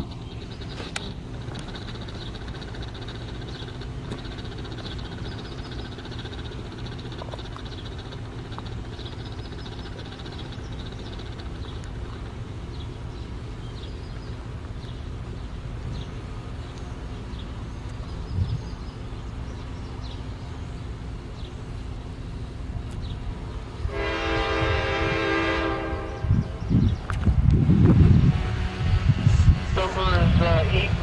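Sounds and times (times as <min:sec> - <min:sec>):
locomotive rumble: 0:00.0 - 0:31.0
locomotive air horn blast: 0:23.8 - 0:26.6, 0:28.2 - 0:29.5.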